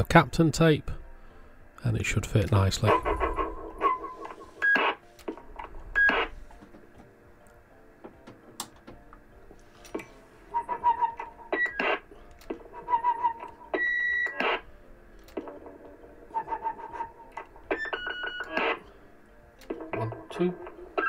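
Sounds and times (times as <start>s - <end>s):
electronic radio beeps: 2.9s - 5.0s, 6.0s - 6.4s, 12.9s - 14.7s.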